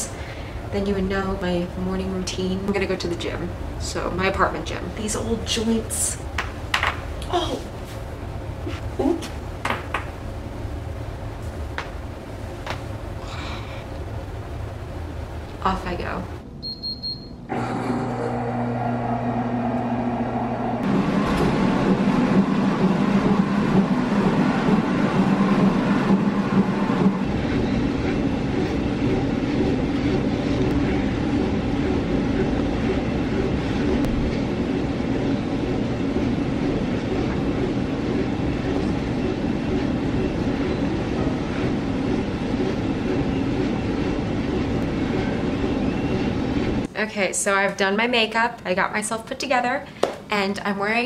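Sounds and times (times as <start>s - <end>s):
treadmill motor and belt drone: 7.8s - 46.9s.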